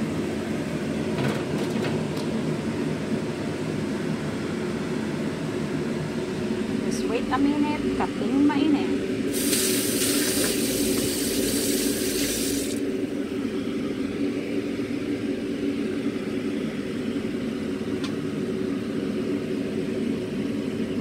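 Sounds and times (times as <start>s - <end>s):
low machine hum: 0.0s - 21.0s
tap water running: 9.3s - 12.8s.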